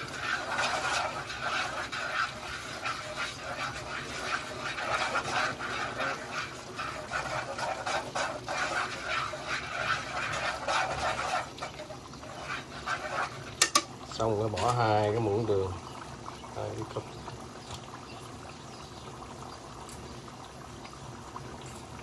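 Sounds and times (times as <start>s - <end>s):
chopsticks stirring: 0.0s - 13.9s
sauce sizzling and bubbling: 0.0s - 22.0s.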